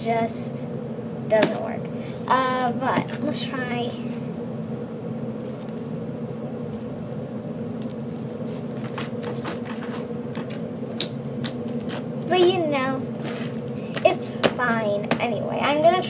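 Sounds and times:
steady low hum: 0.0s - 16.0s
slime squished and crackling: 7.8s - 15.2s.

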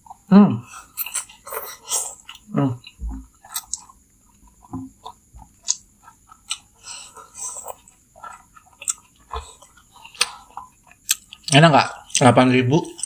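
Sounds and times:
people slurping noodles: 4.6s - 10.8s.

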